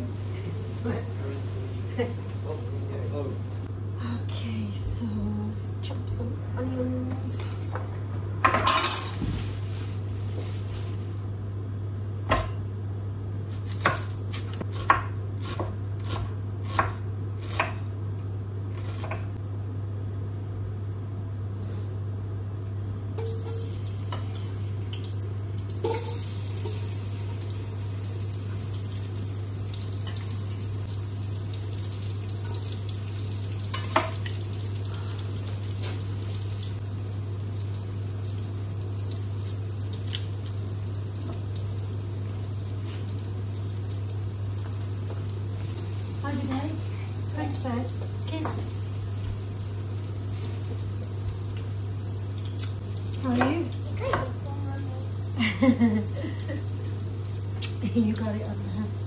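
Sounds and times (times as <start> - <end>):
pot of water boiling: 23.2 - 59.0.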